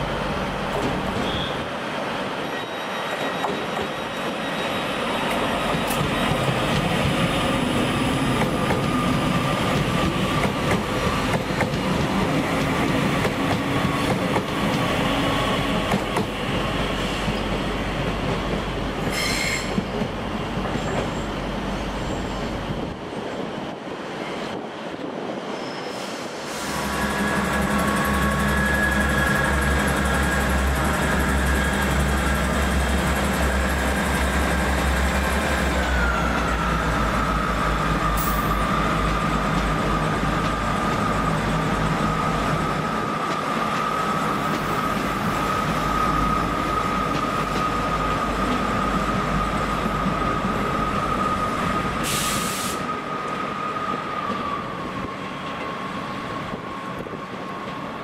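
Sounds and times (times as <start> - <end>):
train high whine: 0.0 - 58.0
train low hum: 0.0 - 58.0
short hiss: 52.1 - 52.8.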